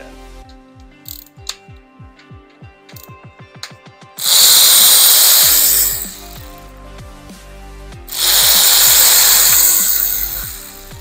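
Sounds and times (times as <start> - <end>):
power tool driving socket: 4.2 - 6.4, 8.1 - 10.9.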